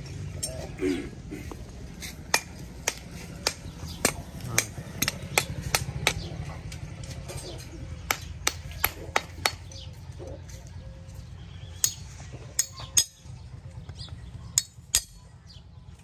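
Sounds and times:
hand tools tapping iron horseshoe: 1.5 - 10.0, 11.7 - 13.3, 14.6 - 15.2.

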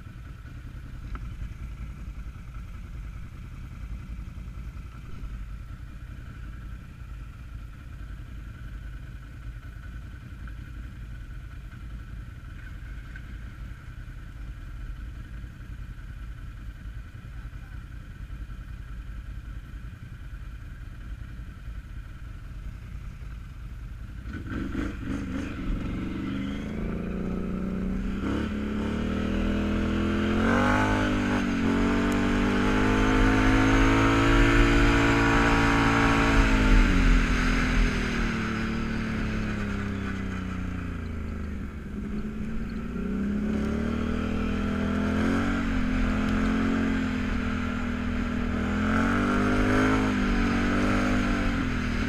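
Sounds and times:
quad bike engine revving: 24.2 - 52.0.

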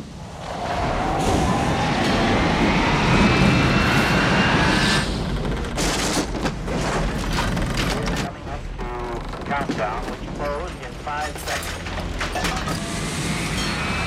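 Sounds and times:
howling storm wind: 0.0 - 6.8
gear crashing and banging: 5.6 - 8.3, 11.2 - 13.8.

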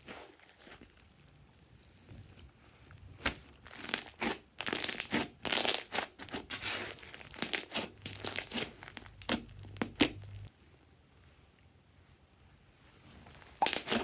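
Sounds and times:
slime crackling and popping: 3.2 - 10.5, 13.4 - 14.0.

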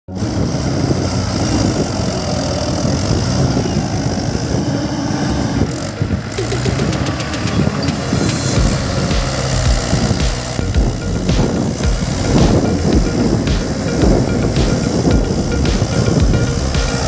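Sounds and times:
tractor diesel engine running: 0.1 - 17.0.

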